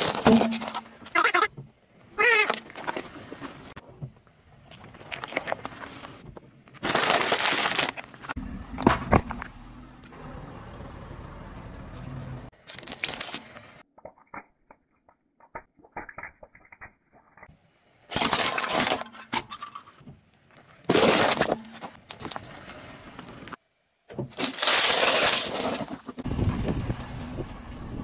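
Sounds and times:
plastic crunching under tyre: 0:00.0 - 0:01.5, 0:04.5 - 0:09.6, 0:12.5 - 0:13.9, 0:18.1 - 0:26.9.

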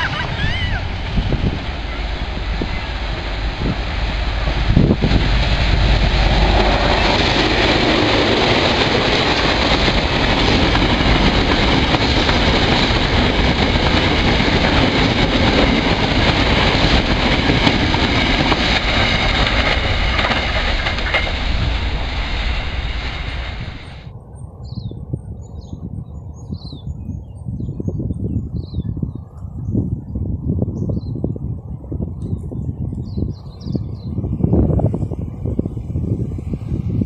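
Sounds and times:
freight wagons rolling on rails: 0:00.0 - 0:24.1
diesel locomotive passing: 0:00.0 - 0:26.2, 0:32.6 - 0:37.0.

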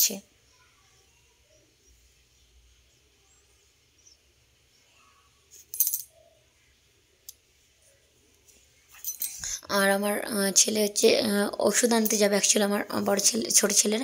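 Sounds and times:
metallic jingle: 0:09.0 - 0:09.4.

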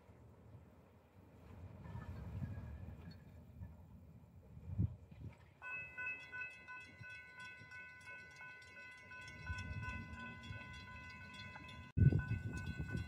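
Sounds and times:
crossing bell dinging: 0:05.6 - 0:13.0.

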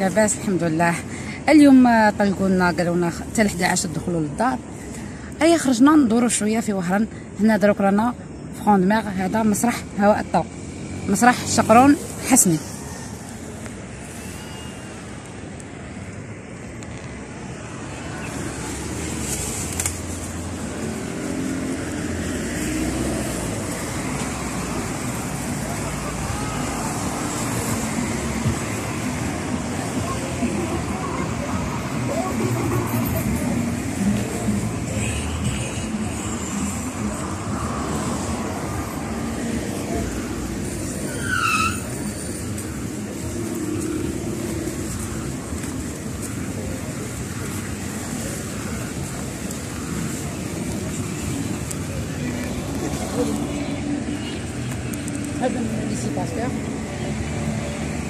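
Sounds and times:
cars passing on city street: 0:00.0 - 0:58.0
high-pitched squeal: 0:40.6 - 0:42.7.

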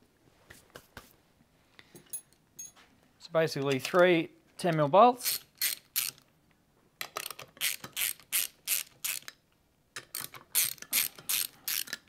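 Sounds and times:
hand ratchet clicking: 0:05.2 - 0:06.2, 0:07.1 - 0:09.4, 0:10.0 - 0:12.0.

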